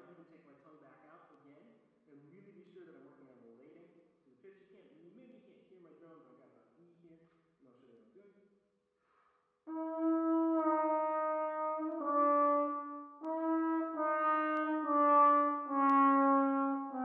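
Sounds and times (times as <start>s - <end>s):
short breath: 9.0s - 9.6s
trombone playing held notes: 9.7s - 17.0s.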